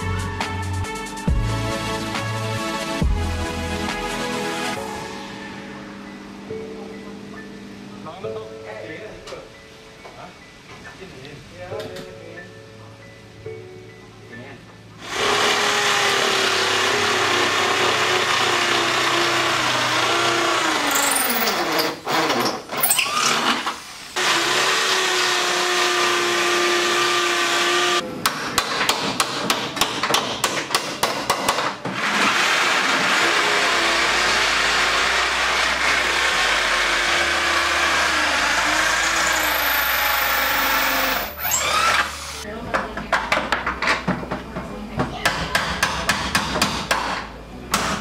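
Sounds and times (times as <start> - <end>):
cordless drill whining: 32.2 - 42.4.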